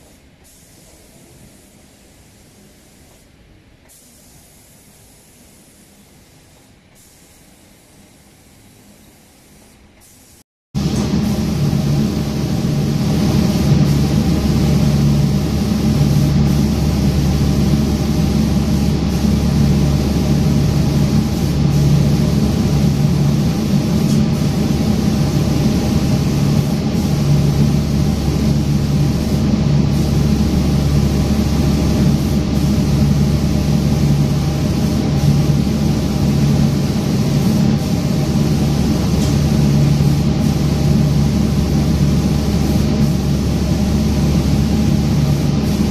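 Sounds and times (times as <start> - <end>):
air hissing: 0.0 - 3.3, 3.9 - 45.9
low mechanical hum: 0.0 - 45.9.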